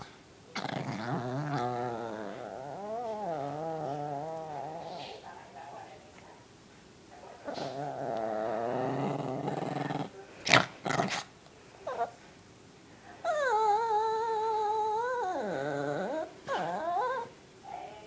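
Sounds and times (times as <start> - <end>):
dog growling: 0.5 - 5.2, 7.4 - 11.3, 13.2 - 17.3.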